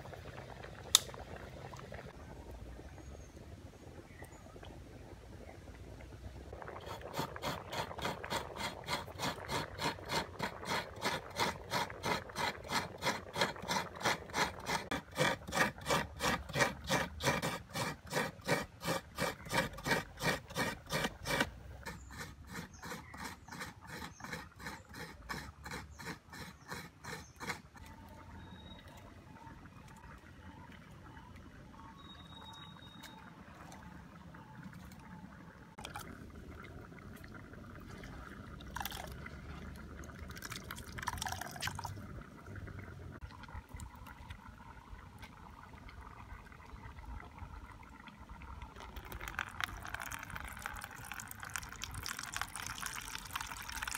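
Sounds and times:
coconut grating rasps: 6.6s - 27.9s, 49.0s - 53.9s.

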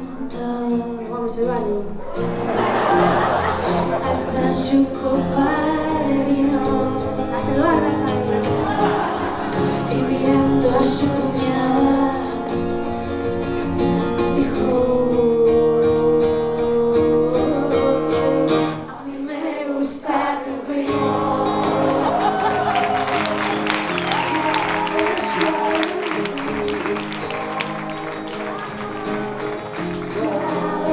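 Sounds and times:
woman singing: 0.0s - 2.0s, 4.0s - 8.4s, 9.8s - 12.5s, 14.1s - 22.8s, 24.1s - 27.6s, 30.0s - 30.9s
acoustic guitars: 0.0s - 30.9s.

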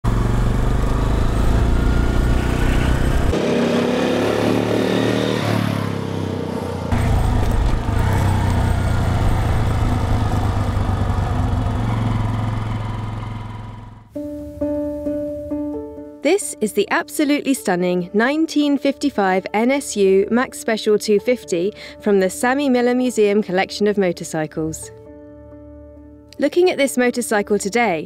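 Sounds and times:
motorcycle engine running: 0.0s - 14.2s.

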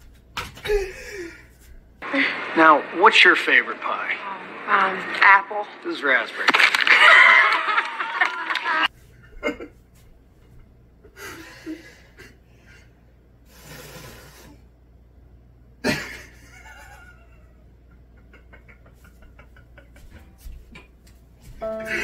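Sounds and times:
group gasping and laughing: 6.8s - 9.7s
low room hum: 6.9s - 22.0s.

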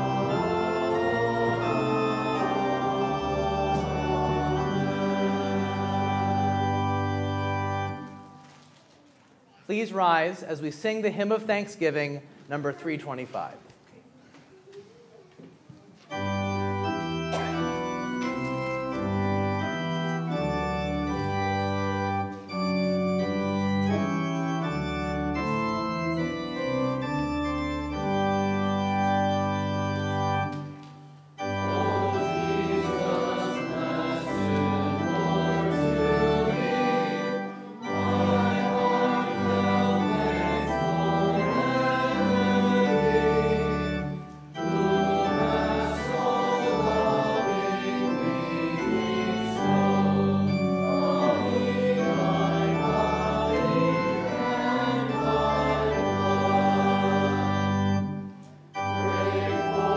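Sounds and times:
congregation singing a hymn: 0.0s - 8.5s, 16.1s - 59.9s
church organ chords: 0.0s - 8.6s, 16.1s - 59.9s.

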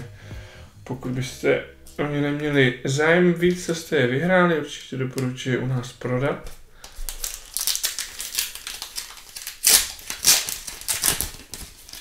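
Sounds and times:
foil wrapper crackles: 6.8s - 12.0s
foil wrapper crinkling and tearing: 6.8s - 12.0s.

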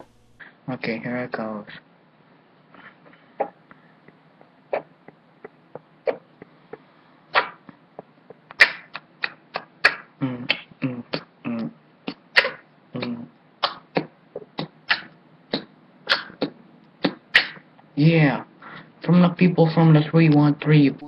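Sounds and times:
boy beatboxing: 0.0s - 0.4s, 2.8s - 18.4s
hummed bass notes: 0.0s - 0.4s.

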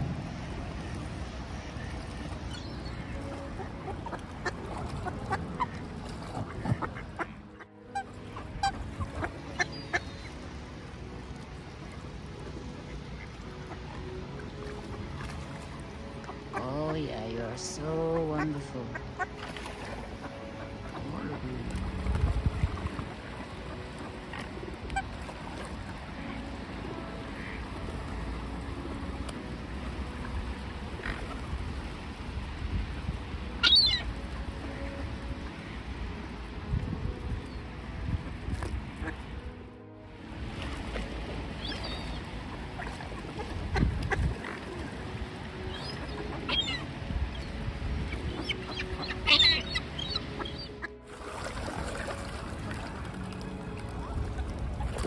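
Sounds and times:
low rumble: 0.0s - 9.2s
steady low rumble: 0.0s - 19.4s, 20.0s - 48.4s
waterbirds calling: 0.0s - 55.0s
duck calls: 6.4s - 10.0s, 27.3s - 27.6s.

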